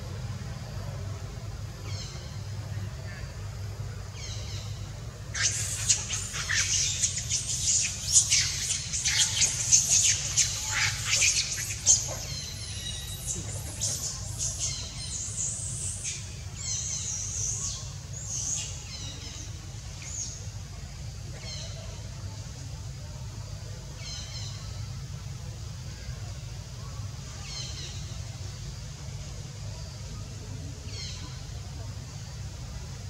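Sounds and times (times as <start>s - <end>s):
birds chirping and squawking: 5.4s - 15.2s.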